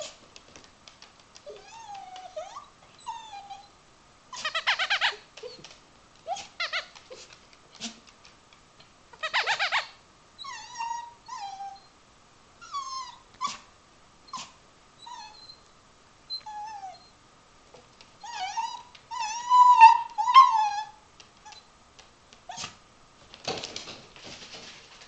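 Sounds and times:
dog whining: 0.0 - 0.2, 1.4 - 8.0, 9.2 - 11.9, 12.6 - 13.7, 14.3 - 15.7, 16.3 - 17.2, 18.2 - 21.7, 22.5 - 22.8
dog yelping: 1.4 - 3.7, 4.3 - 8.0, 9.2 - 11.9, 12.6 - 13.7, 14.3 - 15.6, 16.3 - 17.1, 18.2 - 21.7, 22.5 - 22.8.

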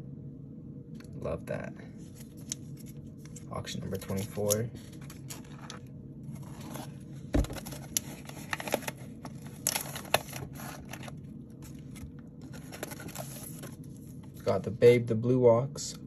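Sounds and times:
plastic wrap rustling and crinkling: 2.2 - 14.2.

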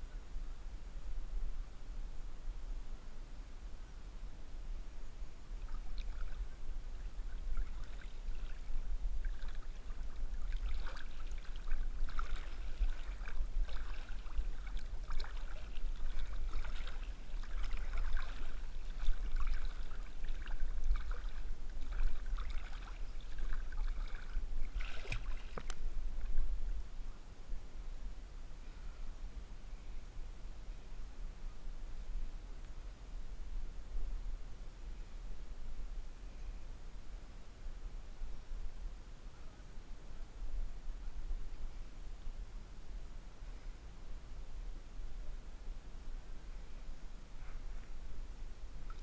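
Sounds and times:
steady low rumble: 0.0 - 49.0
water splashing and lapping: 5.6 - 26.6
sharp splash: 10.4 - 25.7.

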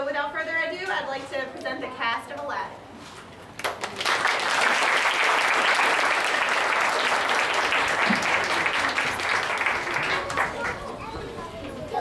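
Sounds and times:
audience clapping: 3.6 - 11.1.

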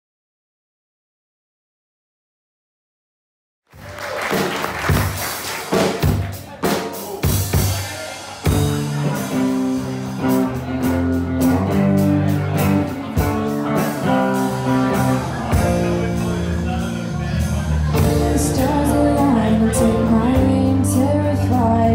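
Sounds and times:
drum kit beat: 3.8 - 21.9
bass guitar: 4.0 - 21.9
electric guitar chords: 8.4 - 21.9.

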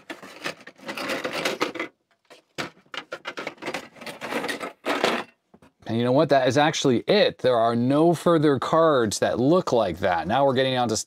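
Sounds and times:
circuit boards clattering in box: 0.0 - 5.4.

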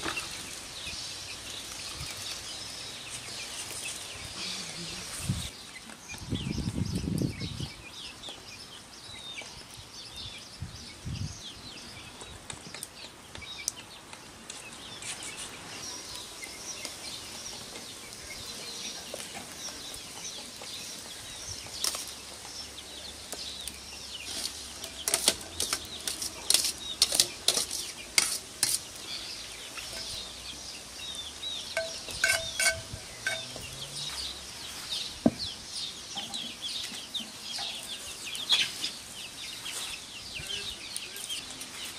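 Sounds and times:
birds chirping: 0.0 - 41.9
metal ladle clinking on colander: 31.8 - 33.6.

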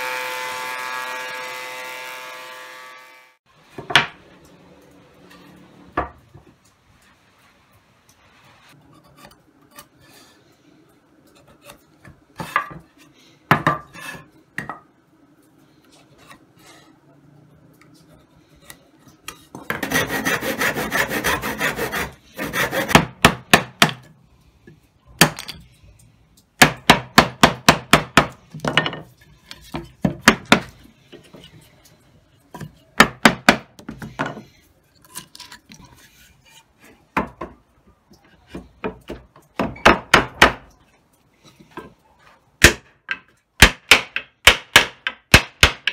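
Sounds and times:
chisel working wood: 19.6 - 23.4
hand saw cutting wood: 19.7 - 23.1.

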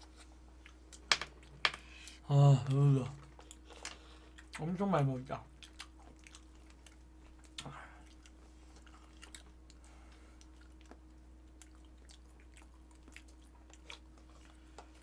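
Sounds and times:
steady low hum: 0.0 - 15.0
quiet chewing: 3.1 - 4.7, 5.5 - 15.0.

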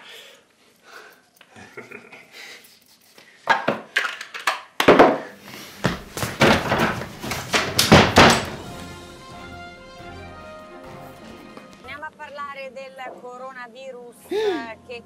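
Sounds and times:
loud knocks and thuds: 5.9 - 8.7.

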